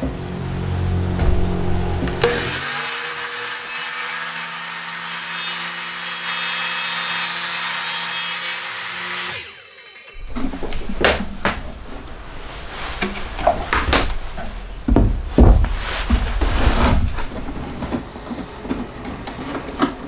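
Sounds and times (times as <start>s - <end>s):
saw motor winding down: 0.2s - 4.5s
circular saw cutting wood: 0.2s - 10.8s.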